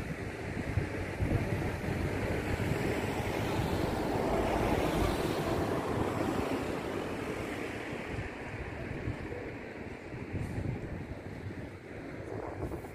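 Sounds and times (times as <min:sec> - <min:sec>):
wind on microphone: 0:00.0 - 0:12.9
sea waves washing: 0:00.3 - 0:10.4.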